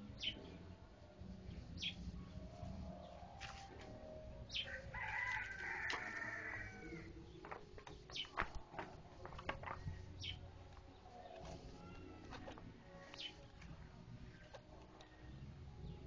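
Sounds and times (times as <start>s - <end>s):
rooster crowing: 4.6s - 7.1s.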